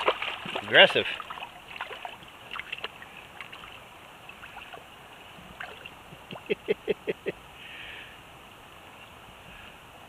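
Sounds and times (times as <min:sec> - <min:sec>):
water splashes and drips: 0:00.0 - 0:06.5
stream running over stones: 0:00.0 - 0:06.6.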